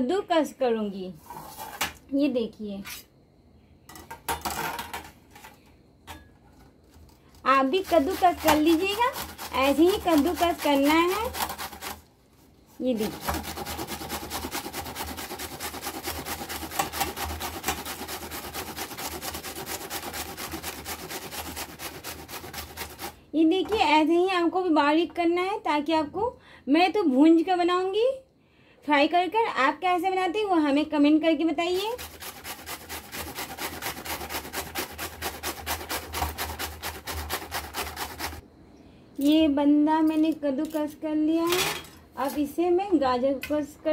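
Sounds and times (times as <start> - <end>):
cabbage rasping on a grater: 7.4 - 12.1, 12.8 - 23.2, 31.6 - 38.4.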